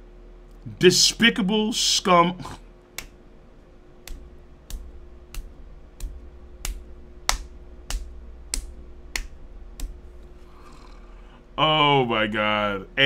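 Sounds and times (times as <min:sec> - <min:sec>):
faint steady hum: 0:00.0 - 0:13.0
sharp repeating clicks: 0:04.0 - 0:10.0.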